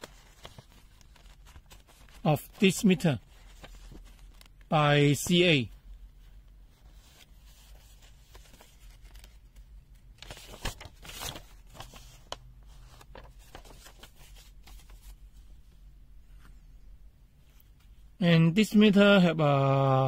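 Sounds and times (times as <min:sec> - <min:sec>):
packaging rustling: 0:00.0 - 0:04.7, 0:06.9 - 0:09.5, 0:10.2 - 0:15.2.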